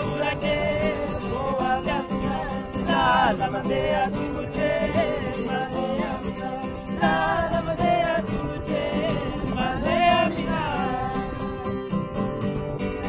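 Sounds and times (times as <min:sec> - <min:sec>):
person singing: 0:00.0 - 0:11.9
guitar accompaniment: 0:00.0 - 0:13.0.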